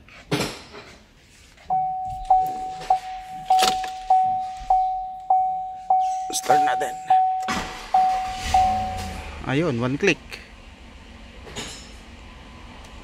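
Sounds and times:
dashboard warning chime: 0:01.7 - 0:09.4.

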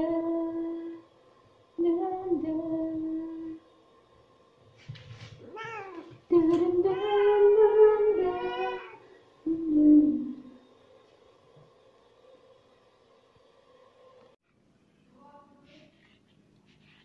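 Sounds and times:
cat meowing: 0:05.4 - 0:06.1
woman humming: 0:06.0 - 0:10.5.

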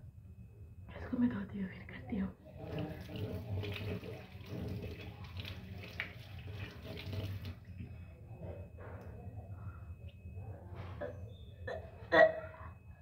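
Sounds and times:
water running from tap: 0:02.6 - 0:07.8.

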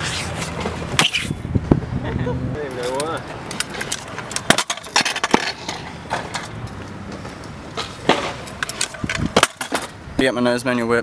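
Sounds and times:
scooter wheels rolling on concrete: 0:00.0 - 0:11.0
scooter deck clacking on ground: 0:02.8 - 0:10.0.

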